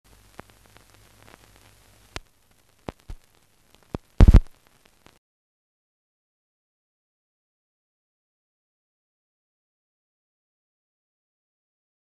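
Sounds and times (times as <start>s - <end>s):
crackles and pops: 0.0s - 5.2s
film sound track hiss: 0.0s - 5.2s
sharp clicks: 3.9s - 5.2s.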